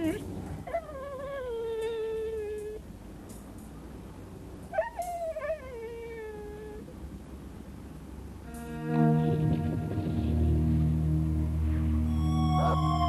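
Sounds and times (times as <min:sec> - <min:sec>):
wolf howling: 0:12.1 - 0:13.0.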